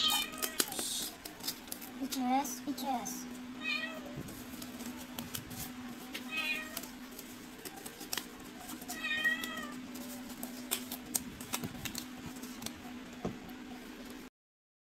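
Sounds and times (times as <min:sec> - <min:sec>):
cat meowing: 0:03.6 - 0:04.2, 0:08.9 - 0:09.8.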